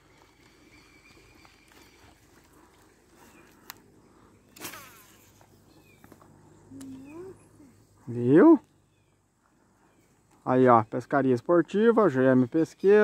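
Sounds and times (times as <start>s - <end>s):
footsteps on dirt: 0.0s - 3.8s.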